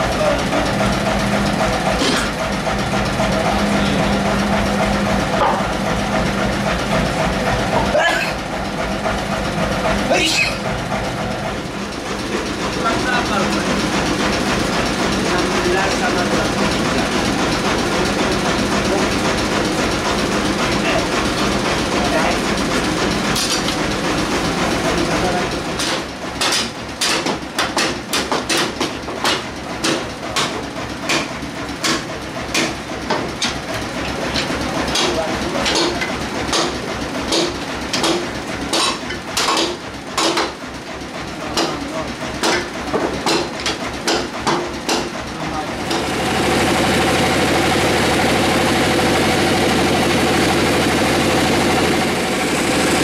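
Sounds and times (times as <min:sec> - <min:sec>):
sawmill machinery running: 0:00.0 - 0:53.0
sharp irregular knocks and clacks: 0:25.7 - 0:40.6, 0:41.5 - 0:45.3.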